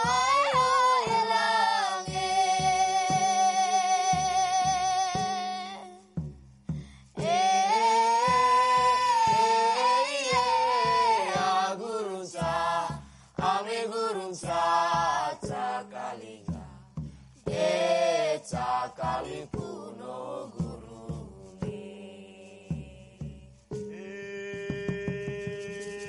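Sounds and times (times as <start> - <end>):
group singing a chant: 0.0 - 6.0, 7.2 - 16.8, 17.4 - 26.0.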